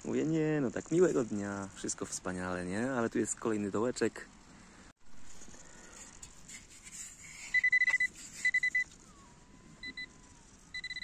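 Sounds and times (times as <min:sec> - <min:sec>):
metal detector beeping: 0:07.5 - 0:09.0, 0:09.8 - 0:11.0.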